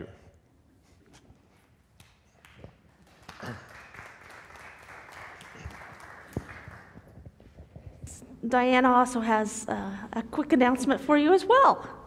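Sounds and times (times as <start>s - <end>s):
congregation applauding: 2.4s - 7.2s.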